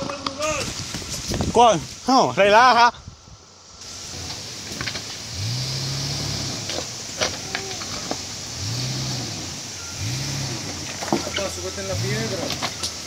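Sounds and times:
stones crunching under tyres: 0.0s - 2.1s, 3.8s - 13.0s
car engine revving: 3.8s - 13.0s.

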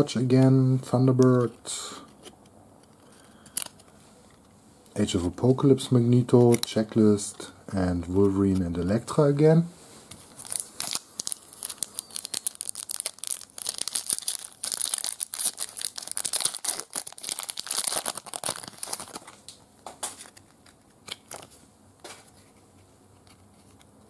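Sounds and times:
foil wrapper tearing and crinkling: 10.3s - 21.5s.

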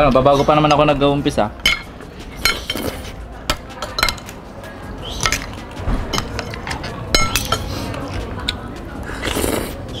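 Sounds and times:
cutlery clinking on plates: 1.6s - 4.4s, 5.2s - 8.6s.

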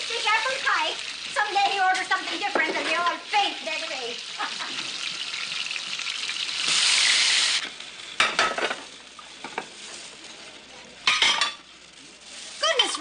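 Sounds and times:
steaks sizzling in a frying pan: 0.0s - 13.0s
kitchenware clinks and knocks: 8.2s - 9.7s.

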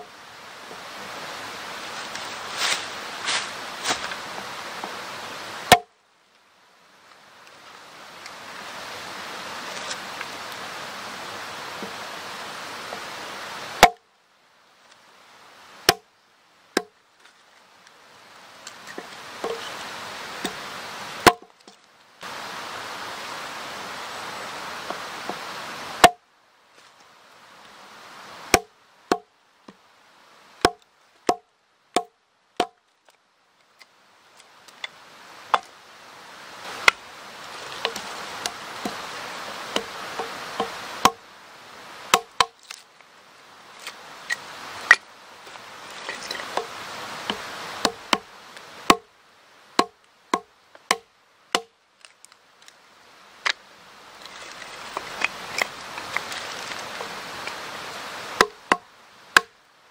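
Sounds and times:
background hiss: 0.0s - 59.9s
hatchet splitting wood: 5.7s - 5.9s, 13.8s - 14.0s, 15.8s - 16.0s, 21.2s - 21.5s, 26.0s - 26.2s, 28.5s - 29.3s, 30.6s - 31.4s, 32.0s - 32.8s, 39.7s - 41.2s, 42.1s - 42.8s, 46.4s - 48.3s, 48.9s - 49.1s, 49.8s - 51.7s, 58.4s - 58.8s.

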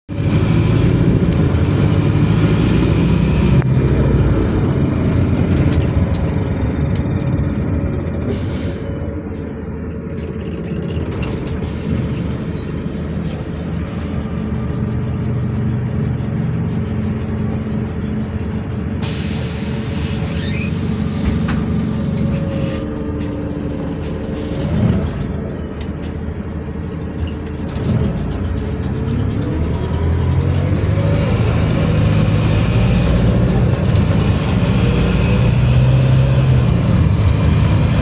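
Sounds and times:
bus engine running: 0.1s - 38.0s
high squeal: 11.8s - 14.6s, 19.1s - 22.8s.

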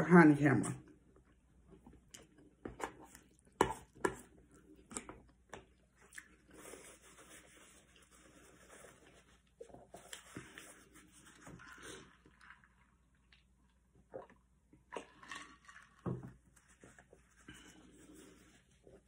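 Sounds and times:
chewing: 4.7s - 6.6s
paper napkin rustling: 6.5s - 11.5s.

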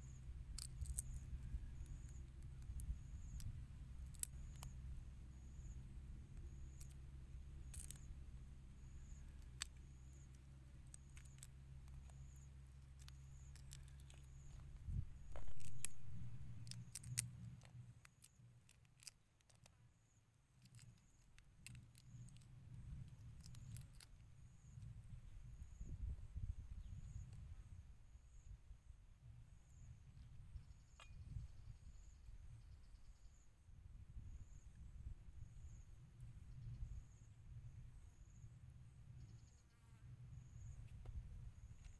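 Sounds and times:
shrimp shells snapping: 0.6s - 1.2s, 15.3s - 17.3s
low rumble: 14.1s - 18.0s.

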